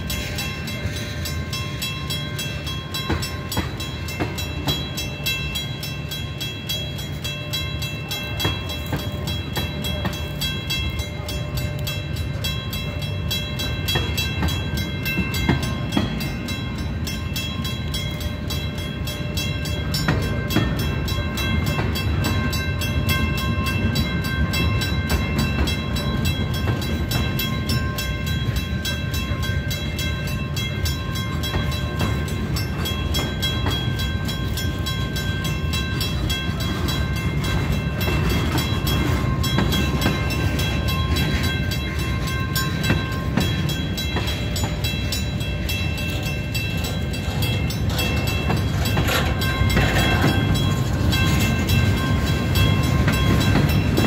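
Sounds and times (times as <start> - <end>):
crossing bell ringing: 0.0 - 54.0
train wheels rumbling on rails: 0.0 - 54.0.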